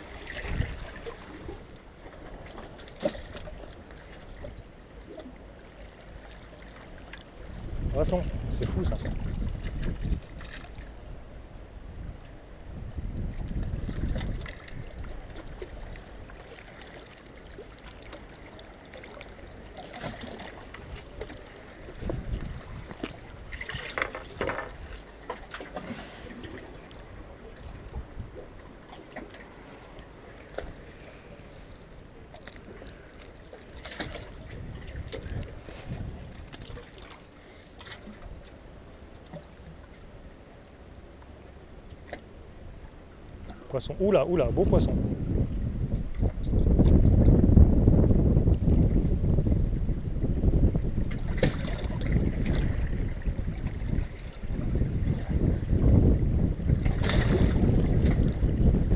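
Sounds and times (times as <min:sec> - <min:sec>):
wind buffeting microphone: 0:00.0 - 0:01.7, 0:07.3 - 0:16.5, 0:20.2 - 0:25.2, 0:26.4 - 0:28.8, 0:33.9 - 0:37.0, 0:42.6 - 0:58.9
water lapping against rocks: 0:00.0 - 0:11.0, 0:13.0 - 0:39.9, 0:50.7 - 0:58.9
calm sea: 0:00.0 - 0:58.9.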